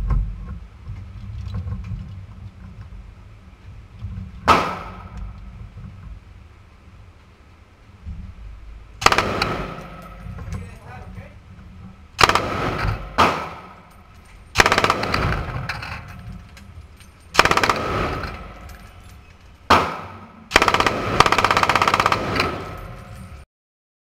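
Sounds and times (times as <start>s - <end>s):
machine gun automatic bursts: 9.0s - 10.1s, 12.2s - 13.8s, 14.5s - 16.1s, 17.3s - 18.8s, 20.5s - 23.2s.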